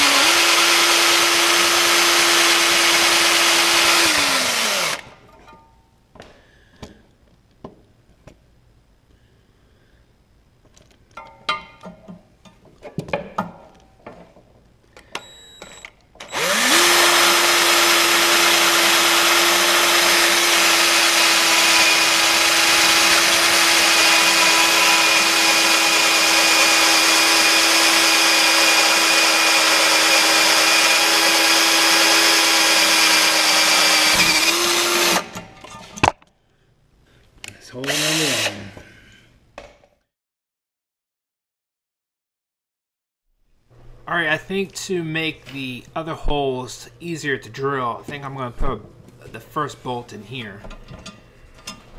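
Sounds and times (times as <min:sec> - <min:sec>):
cordless drill boring through metal: 0:00.0 - 0:05.2, 0:16.2 - 0:35.4, 0:37.8 - 0:38.7.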